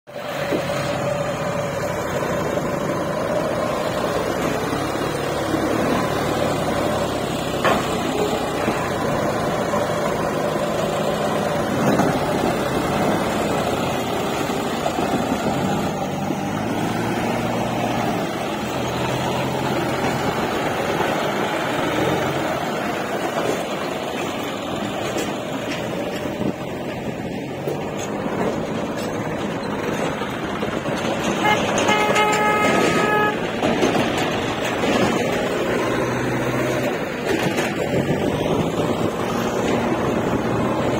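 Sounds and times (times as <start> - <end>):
diesel engines running: 0.1 - 40.9.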